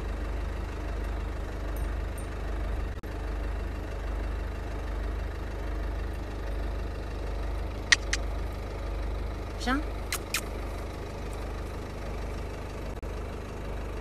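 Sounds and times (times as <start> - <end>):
car engine idling: 0.0 - 14.0
short sharp clicks: 7.9 - 8.3, 10.1 - 10.6.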